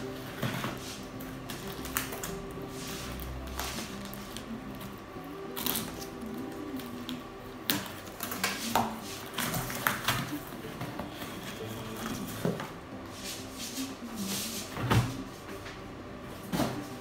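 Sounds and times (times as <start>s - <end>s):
packing tape tearing: 0.0s - 12.6s
cardboard rustling and scraping: 0.1s - 4.4s.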